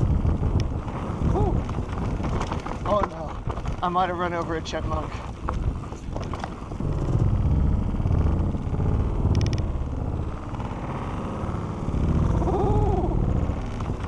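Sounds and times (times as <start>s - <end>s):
fine clicking: 0.0s - 10.7s
bike tyres rumbling over dirt: 0.0s - 14.0s
wind buffeting microphone: 0.0s - 14.0s.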